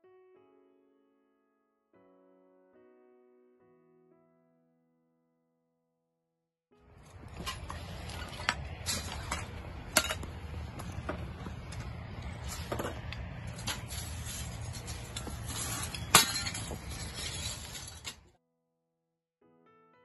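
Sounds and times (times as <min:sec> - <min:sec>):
glass shards clinking and crunching: 0:13.5 - 0:18.3.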